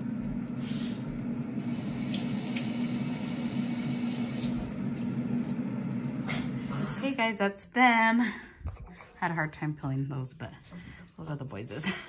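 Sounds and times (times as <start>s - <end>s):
tap running into sink: 2.0s - 6.0s.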